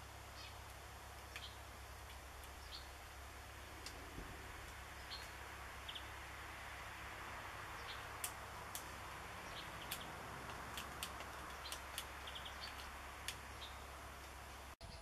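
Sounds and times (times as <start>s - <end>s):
steady hiss: 0.0s - 15.0s
squirrel teeth clicking on shell: 9.8s - 13.5s.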